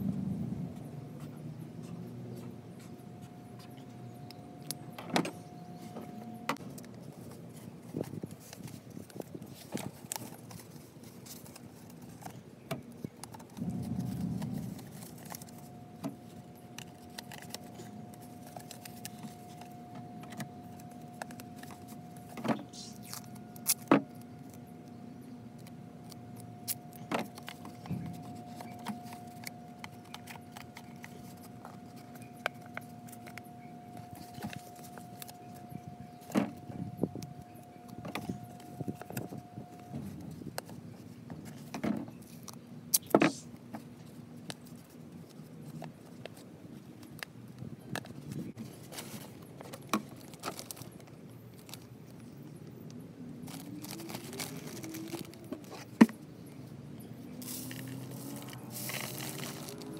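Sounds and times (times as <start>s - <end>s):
steady hum: 0.0s - 50.0s
paper and tape rustling: 5.8s - 25.0s, 25.6s - 47.2s, 47.9s - 52.3s, 53.4s - 56.2s, 57.4s - 59.9s.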